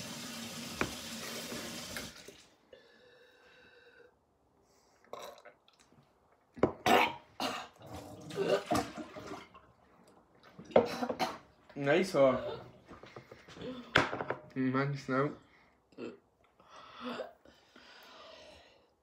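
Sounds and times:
person coughing and gagging: 0:06.7 - 0:09.0, 0:10.7 - 0:11.5.

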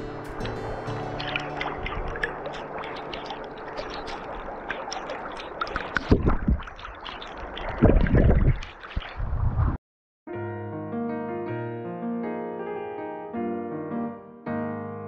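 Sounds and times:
river water flowing over stones: 0:00.0 - 0:09.3
water splashing over camera: 0:00.0 - 0:09.8.

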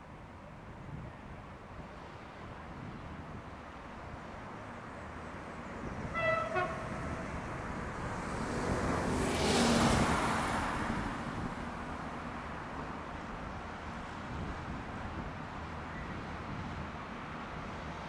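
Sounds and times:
vehicle passing by: 0:05.4 - 0:12.2
tram horn toots: 0:06.0 - 0:07.5.

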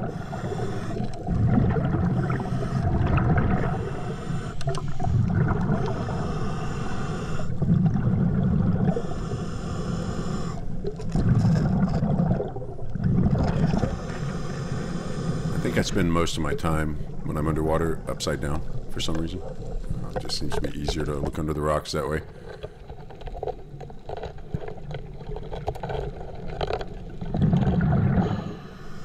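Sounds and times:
faint regulator hiss: 0:00.0 - 0:01.3, 0:03.6 - 0:07.7, 0:08.8 - 0:10.9, 0:13.8 - 0:22.6
air bubbling underwater: 0:27.2 - 0:28.5.

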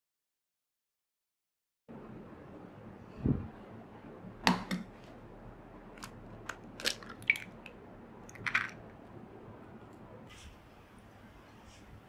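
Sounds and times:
egg cracking on bowl rim: 0:06.0 - 0:08.8
eggshell crackling: 0:06.0 - 0:09.0.

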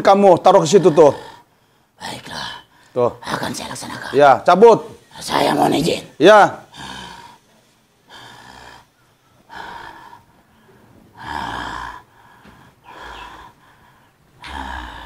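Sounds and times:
man breathing heavily: 0:00.4 - 0:03.1, 0:06.5 - 0:15.0.

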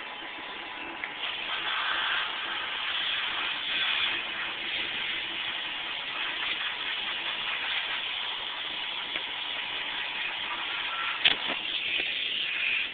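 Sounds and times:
steady hiss: 0:00.0 - 0:12.9.

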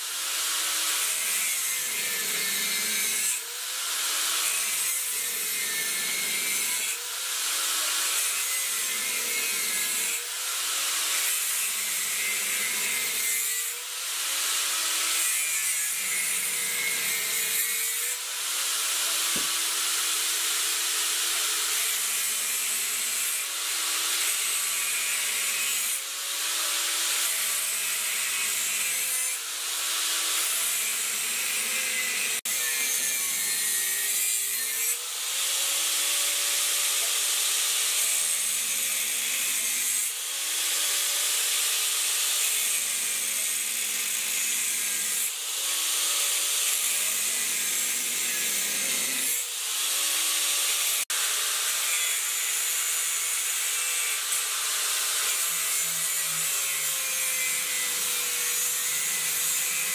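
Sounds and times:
power tool motor whine: 0:11.8 - 0:27.8
rasping scrape on workpiece: 0:14.4 - 0:20.5.

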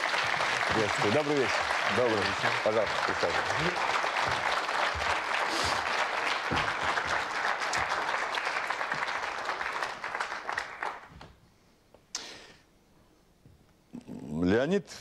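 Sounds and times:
audience applauding: 0:00.0 - 0:11.4.

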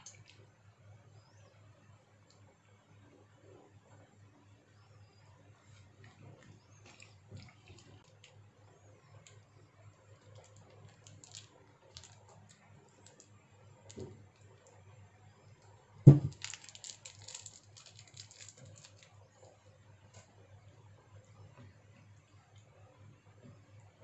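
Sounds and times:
plastic sachet crinkling: 0:10.1 - 0:14.8, 0:16.2 - 0:19.5
loud thud: 0:16.1 - 0:16.4.

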